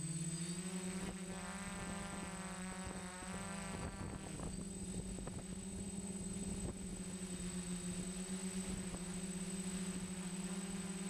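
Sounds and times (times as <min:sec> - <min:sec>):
drone motors and propellers droning: 0:00.0 - 0:11.0.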